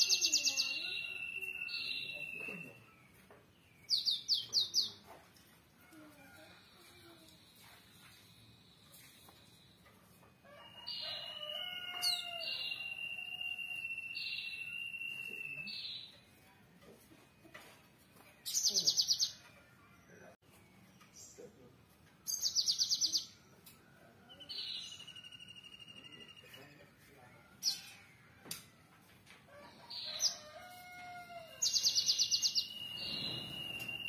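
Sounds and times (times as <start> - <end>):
bird whistled calls: 12.4 - 15.8, 32.0 - 34.0.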